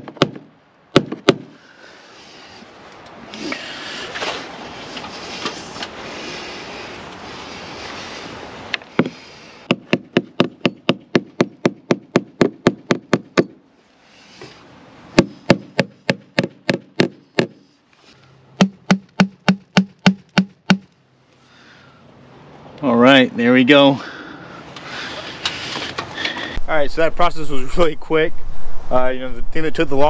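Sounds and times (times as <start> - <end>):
hammer tapping rapidly: 18.6 - 20.8.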